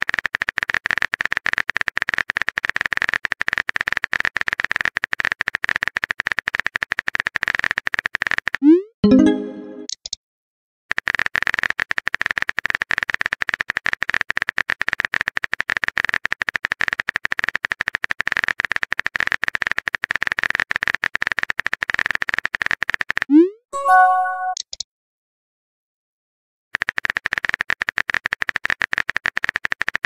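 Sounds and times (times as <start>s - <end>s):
short chime: 23.8s - 24.6s.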